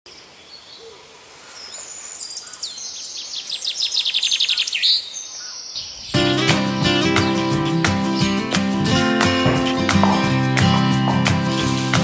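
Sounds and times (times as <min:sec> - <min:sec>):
songbird singing: 0:00.1 - 0:12.0
strummed acoustic guitar music: 0:06.2 - 0:12.0.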